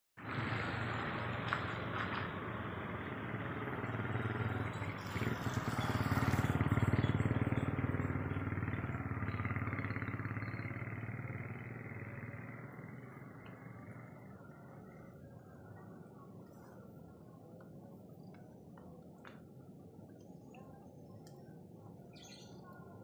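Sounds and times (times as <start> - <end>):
vehicle engine passing by: 0.2 - 15.2.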